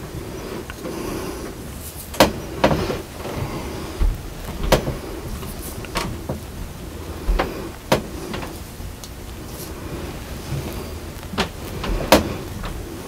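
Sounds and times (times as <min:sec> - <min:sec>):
dull low bumps: 0:02.6 - 0:13.0.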